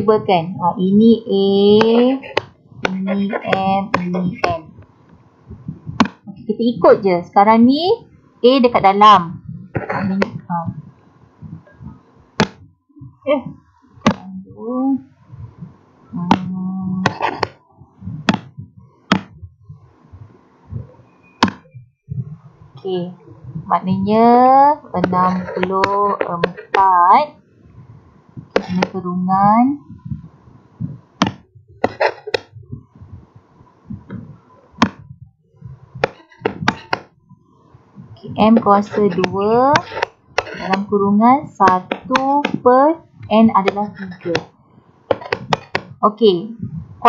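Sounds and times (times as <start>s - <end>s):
soft low thumps: 0.0s - 47.0s
steady hummed tone: 0.0s - 47.0s
sharp taps and clicks: 1.7s - 5.2s, 6.0s - 6.3s, 11.8s - 12.7s, 16.2s - 19.4s, 21.4s - 21.8s, 25.0s - 26.9s, 28.4s - 29.0s, 31.2s - 32.8s, 34.0s - 35.0s, 36.0s - 37.1s, 38.4s - 40.9s, 41.6s - 44.5s, 45.1s - 46.0s.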